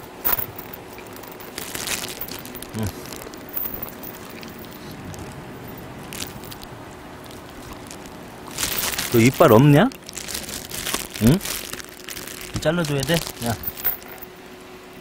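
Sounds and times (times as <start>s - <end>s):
low voice-like sound: 2.7s - 3.0s.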